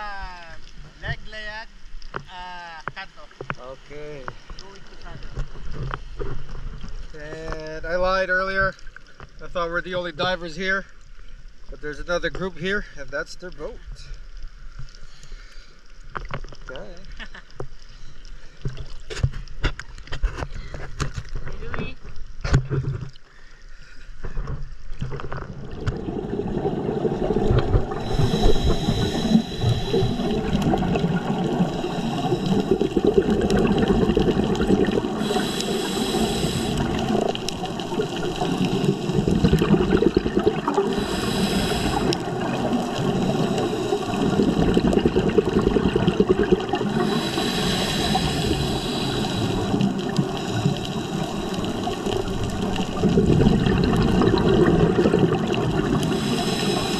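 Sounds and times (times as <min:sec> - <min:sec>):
underwater water noise: 0:00.0 - 0:56.9
regulator bubbles: 0:25.0 - 0:56.9.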